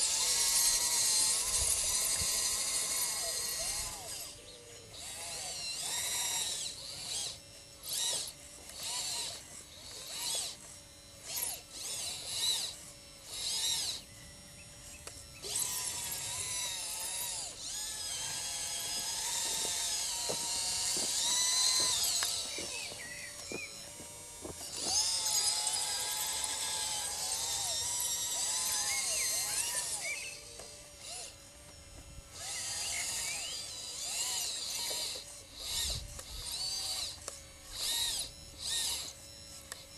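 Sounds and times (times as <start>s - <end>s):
model loader electric motor whine: 0.0s - 39.9s.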